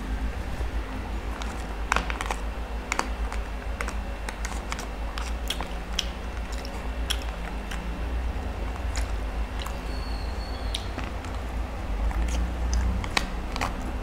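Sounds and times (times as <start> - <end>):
low hum: 0.0 - 14.0
chewing spaghetti: 1.2 - 14.0
mouth clicks: 9.6 - 11.3.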